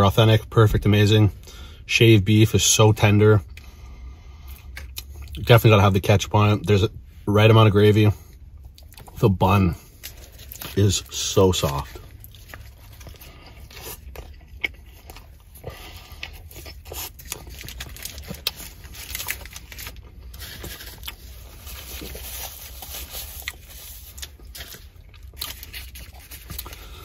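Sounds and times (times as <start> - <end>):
low steady hum: 0.0 - 27.0
man chewing food: 8.4 - 9.2, 9.8 - 27.0.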